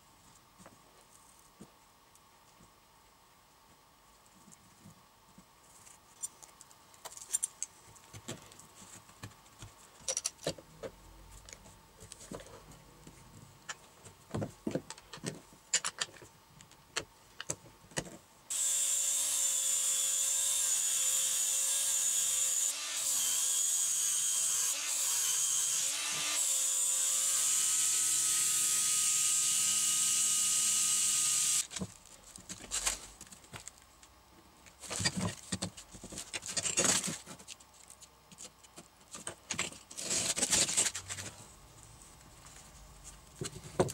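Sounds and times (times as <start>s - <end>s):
angle grinder sanding wood: 18.5s - 31.6s.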